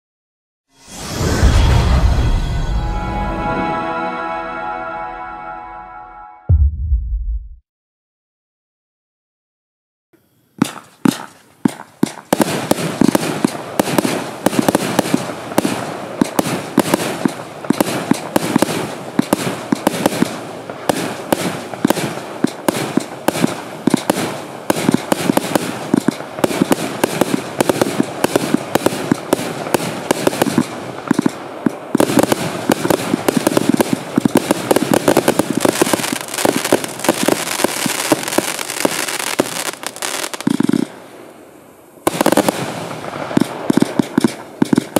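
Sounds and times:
fireworks launching and crackling: 10.6s - 44.9s.

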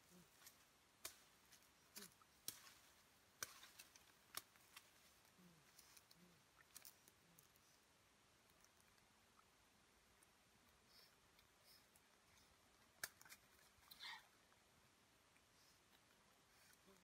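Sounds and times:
twigs snapping: 0.4s - 5.1s, 13.0s - 13.7s.

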